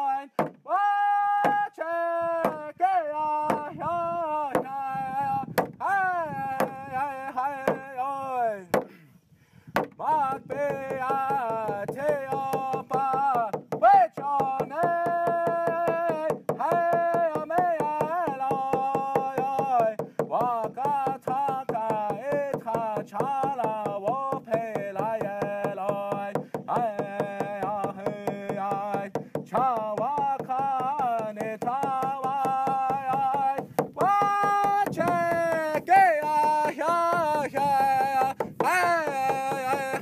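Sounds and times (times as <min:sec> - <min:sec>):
person singing: 0:02.4 - 0:08.7, 0:10.0 - 0:40.0
steady drum beat: 0:25.0 - 0:40.0.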